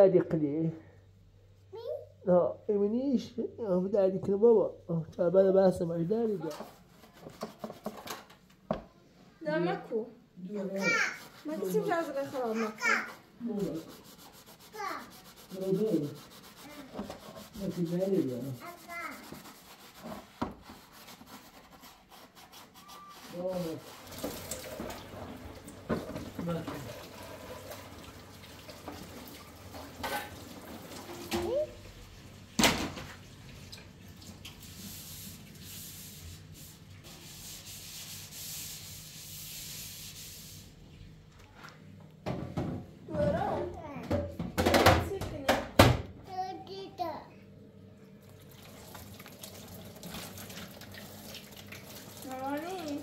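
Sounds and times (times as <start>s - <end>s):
child's voice: 1.7s - 2.2s, 10.6s - 11.3s, 12.5s - 13.2s, 14.7s - 15.2s, 16.6s - 17.0s, 18.6s - 19.4s, 31.1s - 31.8s, 43.1s - 44.3s, 46.2s - 47.4s, 52.2s - 53.0s
scrubbing plastic colander: 10.8s - 31.7s, 48.6s - 53.0s.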